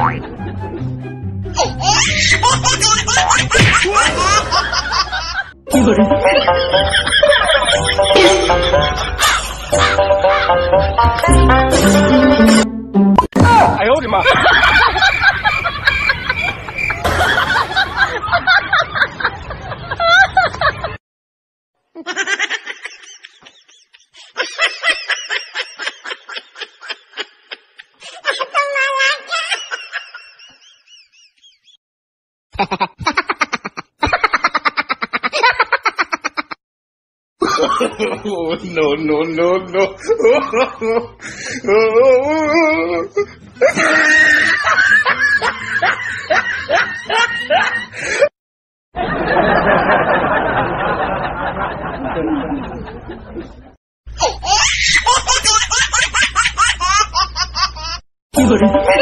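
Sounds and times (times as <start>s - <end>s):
high-pitched snickering laughter: 32.6s - 36.6s.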